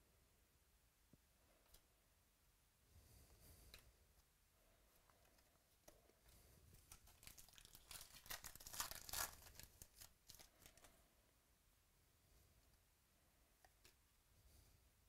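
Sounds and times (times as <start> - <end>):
foil wrapper tearing and crinkling: 6.8 - 10.9.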